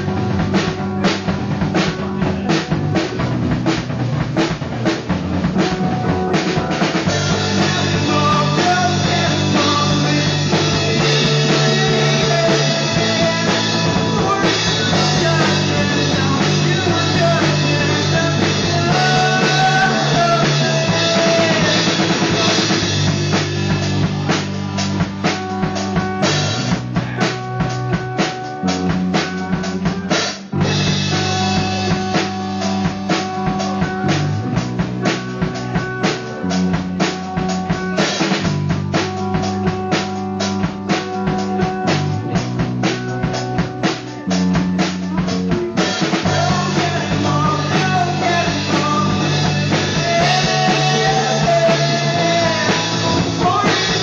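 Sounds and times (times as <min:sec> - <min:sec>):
live rock band playing: 0:00.0 - 0:54.0
regular drum hits: 0:00.0 - 0:54.0.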